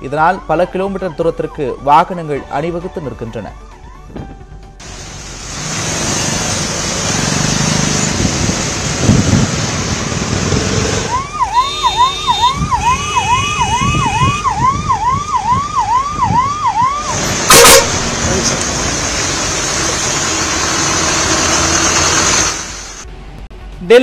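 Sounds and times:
road traffic noise: 4.7s - 24.0s
car horns: 10.6s - 14.5s, 17.0s - 22.7s
ambulance siren yelping: 10.8s - 18.6s.

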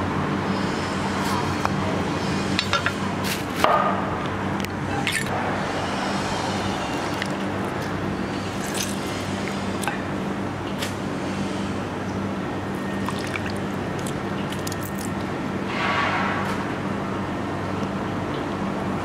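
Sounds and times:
steady low hum: 0.0s - 19.0s
juice squishing and dripping: 4.6s - 5.4s, 6.7s - 10.2s, 12.7s - 15.4s.

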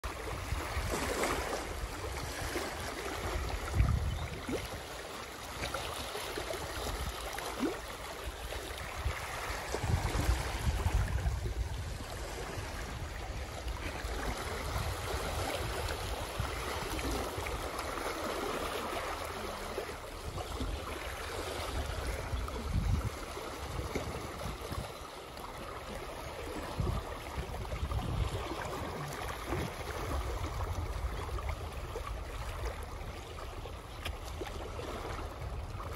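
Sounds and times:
wind gusts on microphone: 0.0s - 4.9s, 8.4s - 18.4s, 19.0s - 25.0s, 25.9s - 33.2s
waves lapping on rocks: 0.0s - 35.9s.

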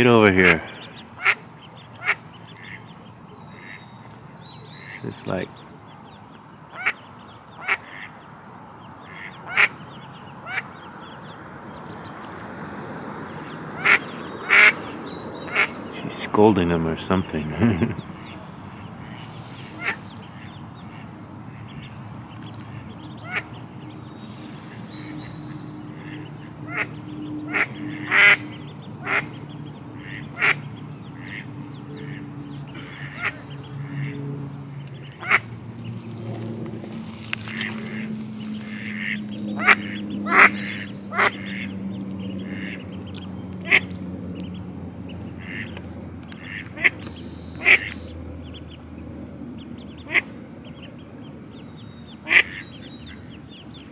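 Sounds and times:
duck quacking: 0.0s - 3.9s, 4.8s - 6.0s, 6.7s - 11.3s, 13.7s - 14.8s, 15.5s - 35.5s, 37.4s - 43.9s, 45.1s - 45.8s, 46.4s - 48.6s, 49.8s - 50.9s, 52.2s - 53.3s.

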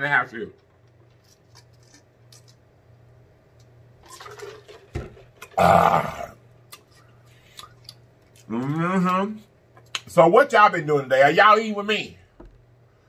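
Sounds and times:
man burping: 5.5s - 6.4s.

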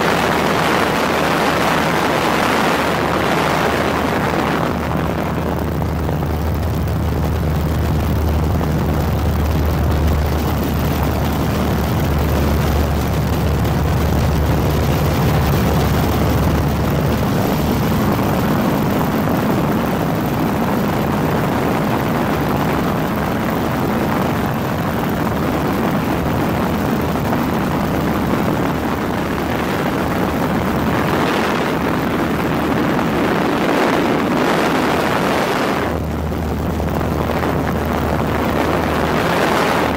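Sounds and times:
aircraft engine and airflow: 0.0s - 39.9s
deep hum: 3.9s - 21.7s.

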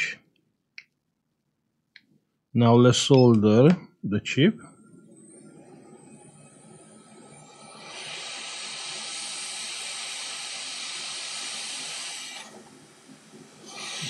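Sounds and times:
hot air station hissing: 5.2s - 14.0s.

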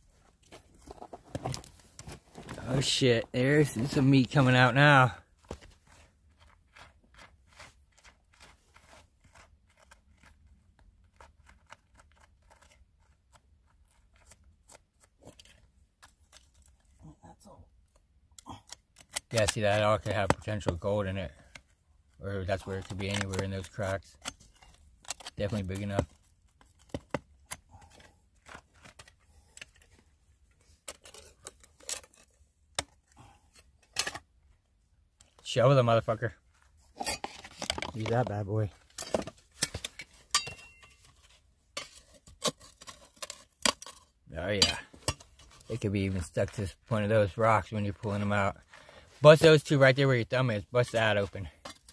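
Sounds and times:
hand pick scraping gravel and rock: 0.4s - 16.8s, 19.1s - 21.5s, 22.2s - 29.9s, 30.7s - 32.5s, 35.4s - 51.9s
metal pick scraping dirt and gravel: 19.2s - 21.3s, 35.4s - 51.9s.

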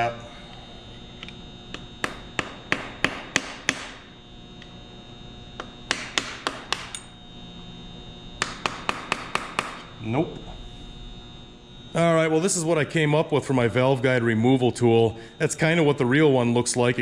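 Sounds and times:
hammer tapping metal: 1.7s - 4.0s, 5.6s - 7.1s, 8.4s - 9.9s.

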